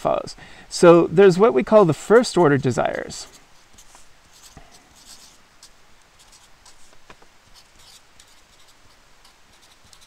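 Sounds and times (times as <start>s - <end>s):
marker pen scratching on paper: 2.0s - 10.0s.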